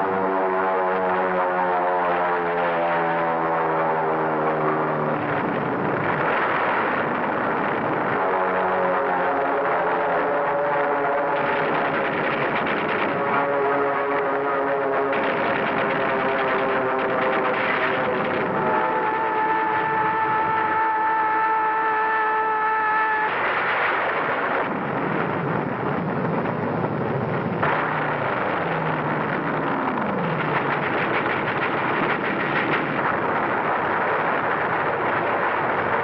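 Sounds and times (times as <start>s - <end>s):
aircraft engine falling in pitch: 0.0s - 36.0s
steady droning tone: 0.0s - 36.0s
explosions: 5.3s - 20.5s, 23.1s - 36.0s
gunfire: 11.0s - 13.9s, 14.8s - 20.1s, 27.6s - 33.6s.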